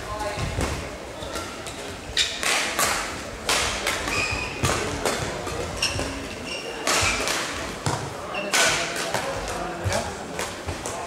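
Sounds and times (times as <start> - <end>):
rackets striking shuttlecock: 0.6 - 11.0
shoes squeaking on court: 4.0 - 8.8.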